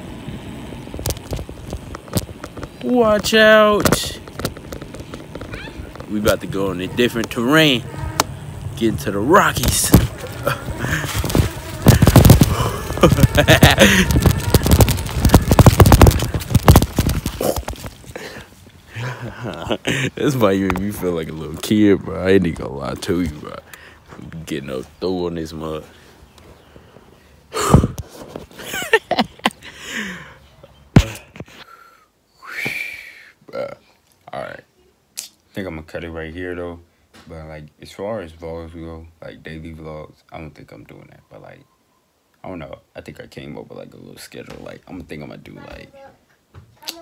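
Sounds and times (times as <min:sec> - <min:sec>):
bike rattling over rocky ground: 0:00.7 - 0:18.2
bumps on phone microphone: 0:09.6 - 0:18.2, 0:27.6 - 0:28.6, 0:30.9 - 0:31.5.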